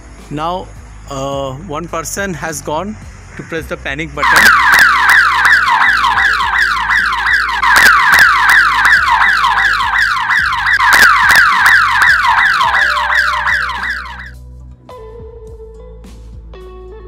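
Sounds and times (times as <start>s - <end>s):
alarm siren whooping: 4.2s - 14.4s.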